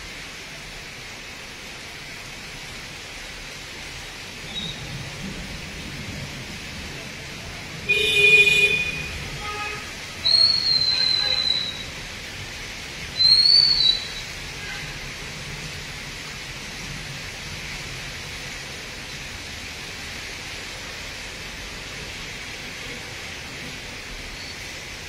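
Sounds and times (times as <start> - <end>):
falling rain hiss: 0.0 - 25.0
high whistle tones: 10.2 - 11.9, 13.2 - 14.2.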